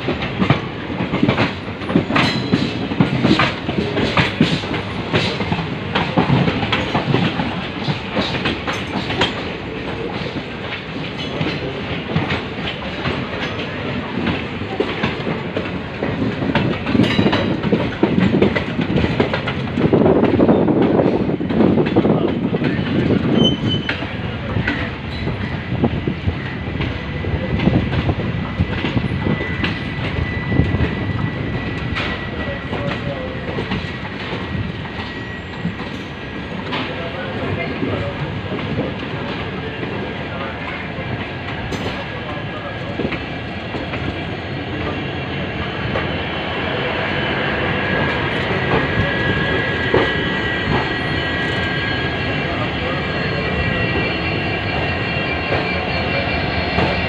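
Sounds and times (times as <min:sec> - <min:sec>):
train rumble: 0:00.0 - 0:57.0
wheel clatter over rail joints: 0:00.2 - 0:25.6.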